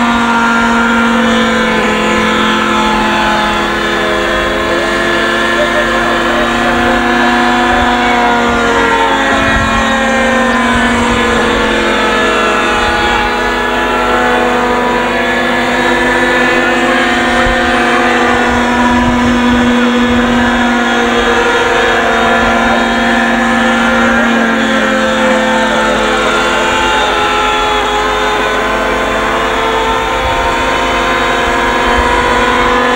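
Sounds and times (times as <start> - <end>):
model helicopter engine whine: 0.0 - 32.9.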